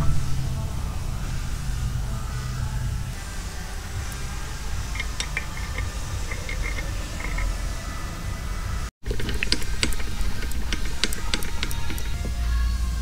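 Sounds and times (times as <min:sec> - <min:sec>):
low hum: 0:00.0 - 0:13.0
metal parts clinking: 0:04.8 - 0:07.6, 0:09.0 - 0:12.4
sharp clicks: 0:04.8 - 0:07.6, 0:09.0 - 0:12.4.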